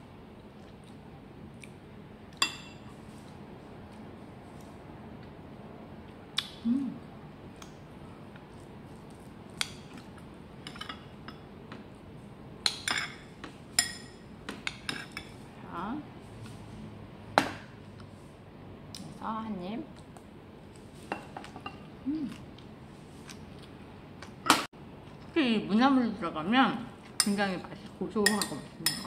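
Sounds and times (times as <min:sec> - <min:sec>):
cutlery clinking against bowls: 0:10.6 - 0:11.5, 0:12.7 - 0:13.2, 0:13.8 - 0:15.4, 0:28.2 - 0:29.0.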